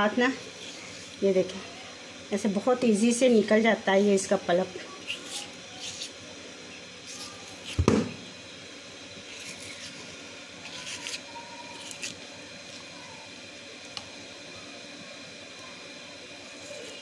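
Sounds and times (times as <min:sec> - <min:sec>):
spoon scraping gel: 0:05.0 - 0:06.2, 0:09.2 - 0:12.8.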